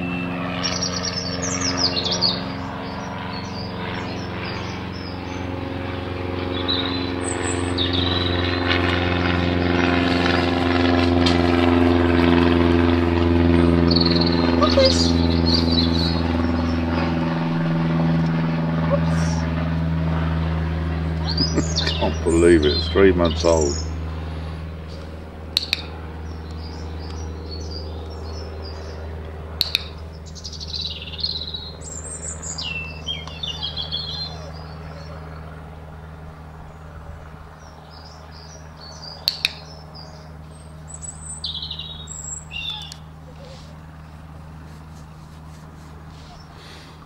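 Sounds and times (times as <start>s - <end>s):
songbirds chirping and trilling: 0.0s - 47.0s
steady low hum: 0.0s - 47.0s
sharp double click: 25.6s - 25.9s, 29.6s - 30.0s, 39.2s - 39.7s.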